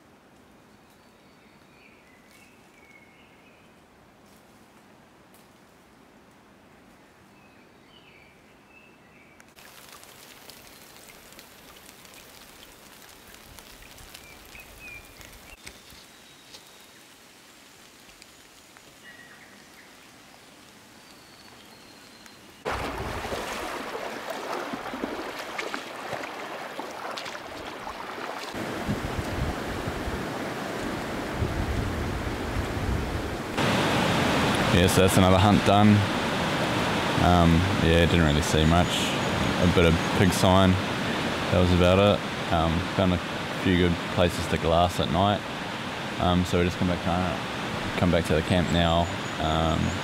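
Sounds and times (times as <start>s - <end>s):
soft steady hiss: 0.0s - 22.6s
stony river rushing: 22.6s - 50.0s.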